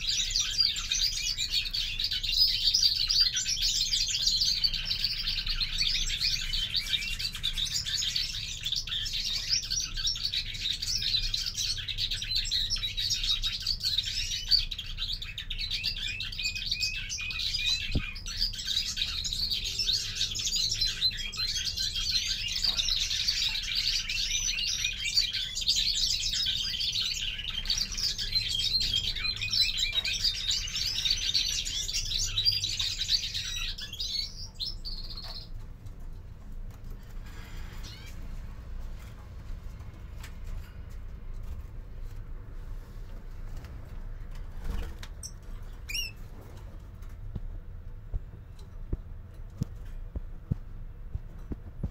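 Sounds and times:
finch twittering and trilling: 0:00.0 - 0:36.0, 0:36.8 - 0:39.2, 0:44.4 - 0:46.4.

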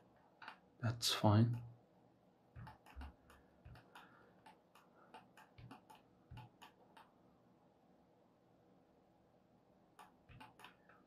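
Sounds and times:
computer mouse clicks: 0:00.4 - 0:00.6, 0:02.6 - 0:07.1, 0:10.0 - 0:11.0
scroll-wheel ticks: 0:02.6 - 0:07.1, 0:10.0 - 0:10.8.

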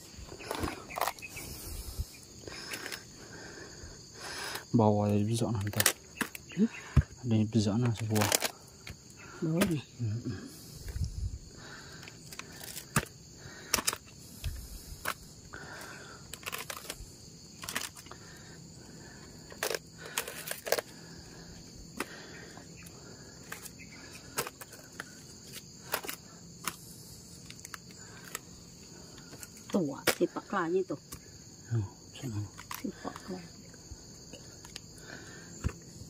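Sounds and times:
high insect drone: 0:00.0 - 0:36.0
spiky fruit knocking on a basket: 0:08.9 - 0:09.8.

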